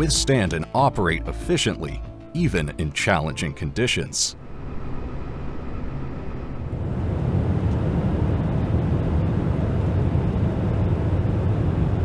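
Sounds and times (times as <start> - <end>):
jet airliner engines roaring: 4.4 - 12.0.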